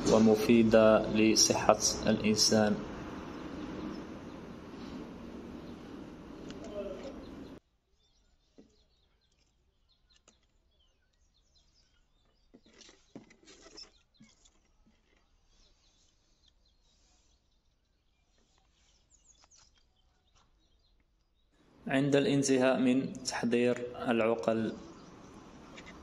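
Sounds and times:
faint clicks and rustles: 2.8 - 7.6, 11.8 - 21.4, 24.9 - 26.0.

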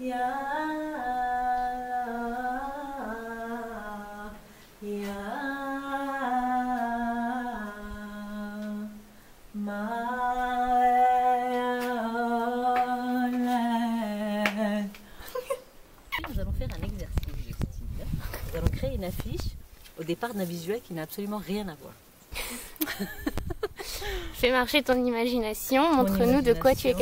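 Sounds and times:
woman humming a slow melody: 0.0 - 9.0.

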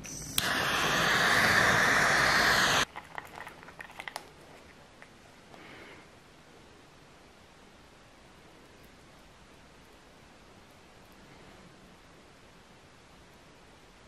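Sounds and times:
hiss of rushing air: 0.0 - 2.9.

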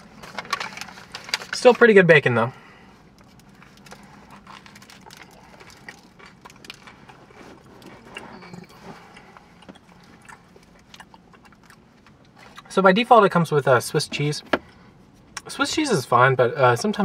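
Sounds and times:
sandwich wrapper crackling: 0.0 - 1.9, 3.1 - 8.4
faint chewing: 3.1 - 12.7.

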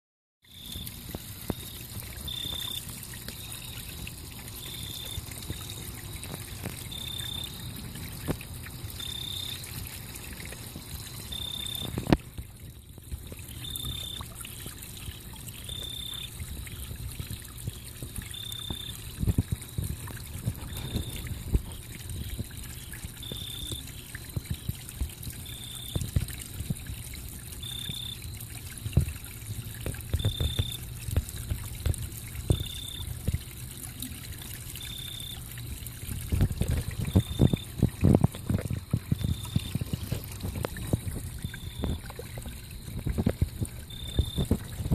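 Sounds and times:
water trickling in a pond: 0.4 - 44.9
fish popping at water surface: 29.8 - 33.4.

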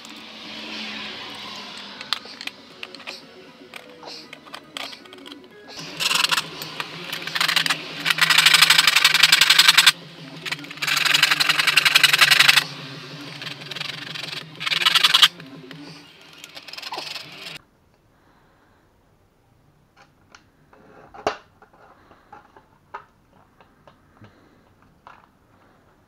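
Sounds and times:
hand ratchet clicking rapidly: 3.8 - 15.4, 16.2 - 17.6.

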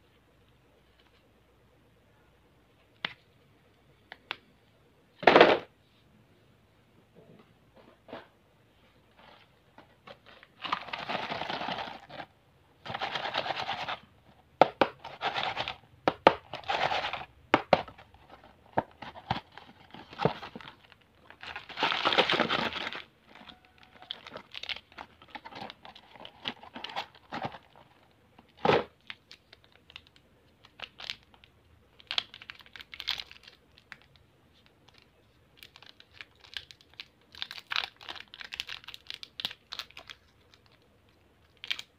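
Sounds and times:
plastic crinkling and rustling: 14.7 - 41.9
packaging ripping: 18.2 - 27.8.

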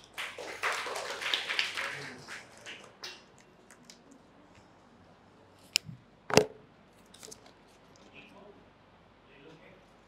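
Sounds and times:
people clapping: 0.0 - 3.4.

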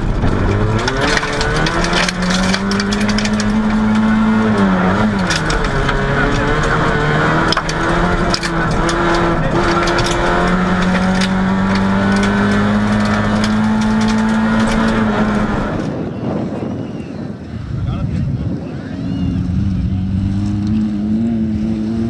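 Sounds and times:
stones pinging against car: 0.0 - 15.4
car gear change: 0.0 - 15.8
car engine revving: 0.0 - 16.0, 19.2 - 22.0.

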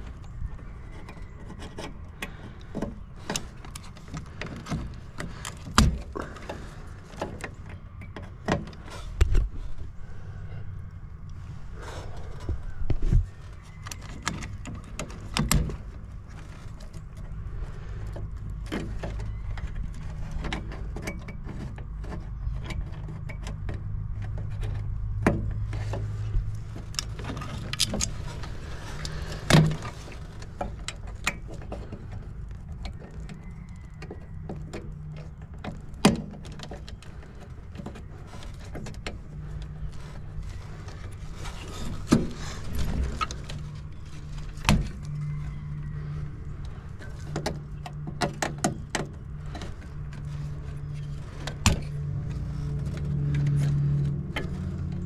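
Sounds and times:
low mechanical hum: 0.0 - 55.0
clicks and clatter of tools: 18.1 - 45.2.

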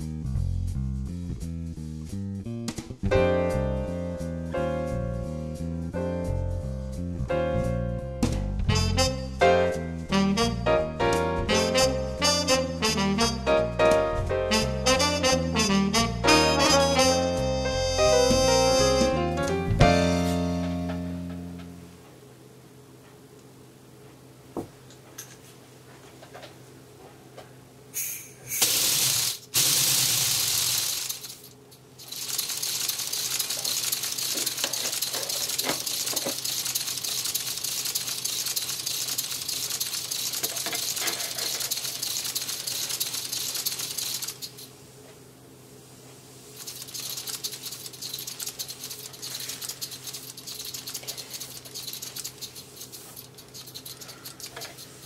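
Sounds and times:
loud air blasts: 28.0 - 31.4
air hissing: 28.0 - 38.2
pneumatic engine rattling: 28.0 - 44.7, 46.6 - 55.0.

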